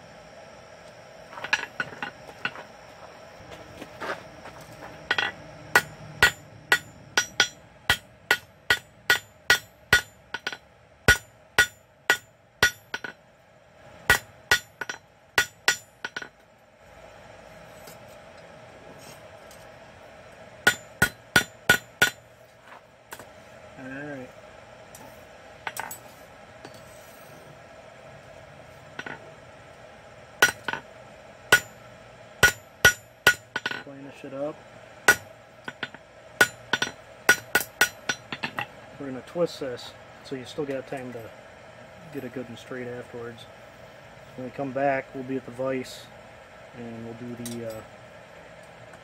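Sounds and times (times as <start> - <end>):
hammer striking metal on anvil: 5.1 - 13.2, 14.1 - 16.3, 20.6 - 22.2, 29.0 - 29.2, 30.4 - 30.8, 31.5 - 31.8, 32.4 - 33.9, 35.1 - 38.7.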